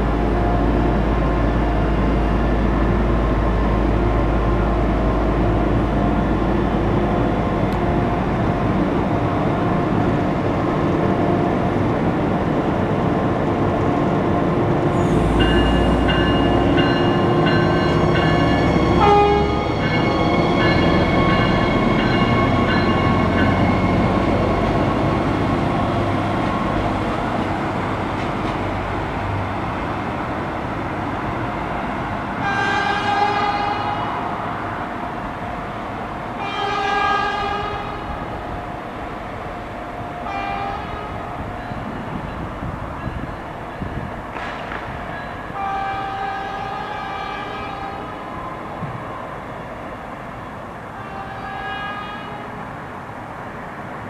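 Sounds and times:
diesel train engines running: 0.0s - 54.0s
train horn: 18.4s - 24.2s, 32.4s - 34.2s, 36.4s - 38.2s, 40.2s - 41.2s, 45.5s - 48.3s, 51.0s - 52.6s.

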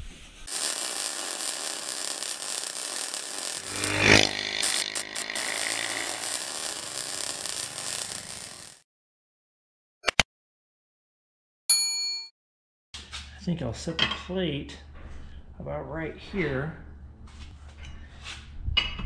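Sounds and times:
harsh noise bed: 0.5s - 8.8s
sweeping whoosh: 3.6s - 8.6s.

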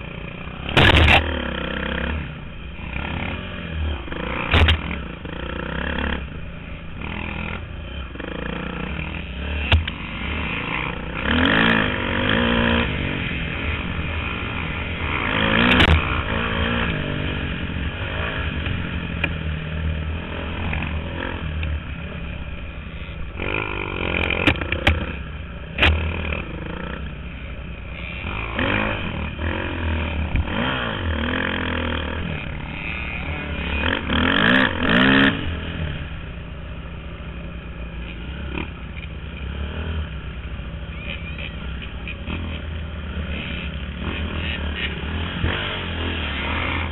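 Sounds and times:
dirt bike engine revving: 0.0s - 46.9s.

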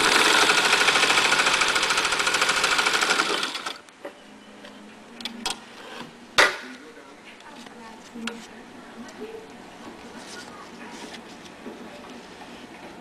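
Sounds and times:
sewing machine stitching: 0.0s - 3.8s.

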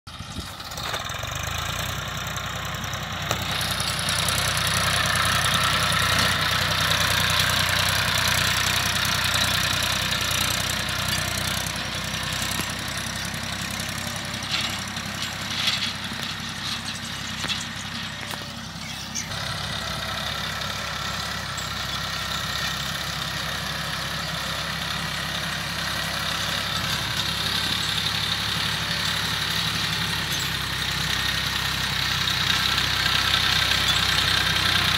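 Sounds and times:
tractor diesel engine under load: 0.1s - 34.9s.

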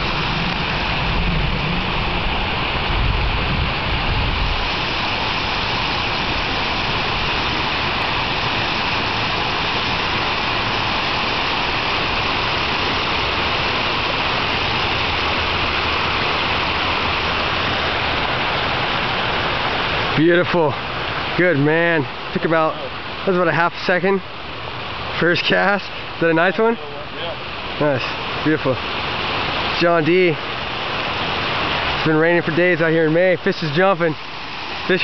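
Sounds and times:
wind buffeting microphone: 0.0s - 19.7s
running water rushing: 0.0s - 35.0s.

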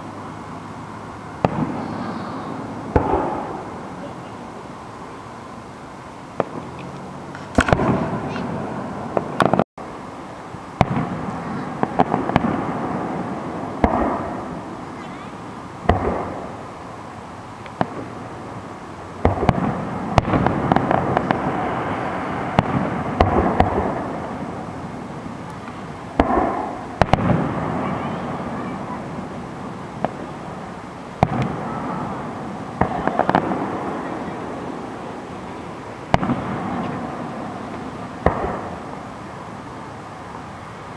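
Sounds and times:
firework bangs: 0.0s - 9.7s, 10.7s - 40.9s
firework pops and crackles: 1.4s - 4.2s, 6.4s - 8.5s, 9.1s - 9.7s, 10.8s - 15.2s, 15.8s - 16.7s, 17.6s - 39.1s.

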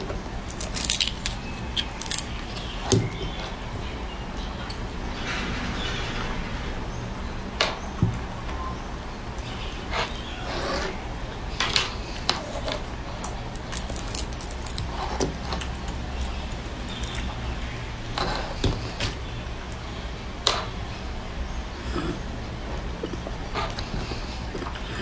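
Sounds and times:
fruit rinds crackling as peeled: 0.0s - 3.8s, 11.9s - 20.0s
steady low hum: 0.0s - 25.0s.

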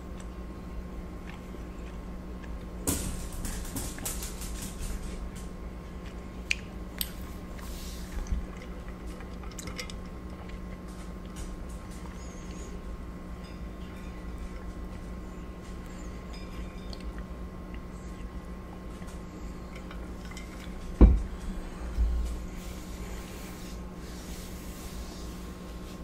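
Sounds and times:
chewing and wet mouth sounds: 0.0s - 2.8s, 5.4s - 12.6s, 14.3s - 20.9s
steady low hum: 0.0s - 26.0s.

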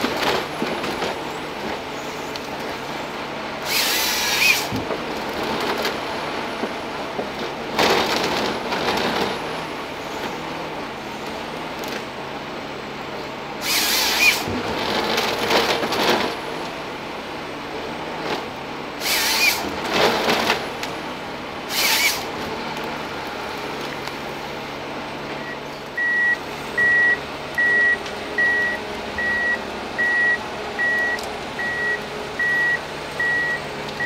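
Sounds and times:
machine engine and hydraulics: 0.0s - 34.0s
chain saw cutting log: 3.6s - 4.7s, 13.6s - 14.6s, 19.0s - 20.7s, 21.7s - 22.5s.

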